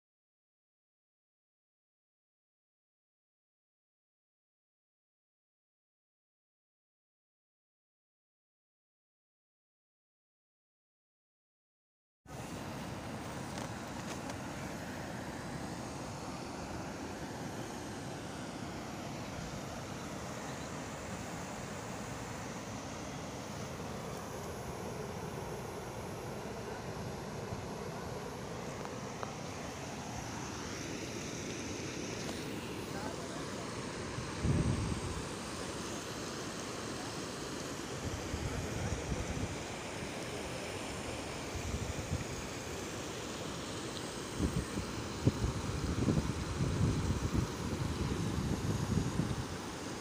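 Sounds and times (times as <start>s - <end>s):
floodwater rushing: 12.3s - 50.0s
wind buffeting microphone: 34.3s - 35.2s, 44.4s - 49.5s.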